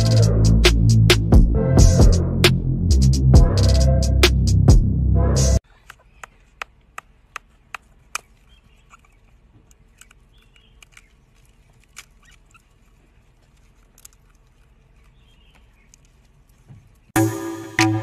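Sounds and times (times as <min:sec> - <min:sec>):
eggshell clicking and crackling: 0:05.8 - 0:17.1.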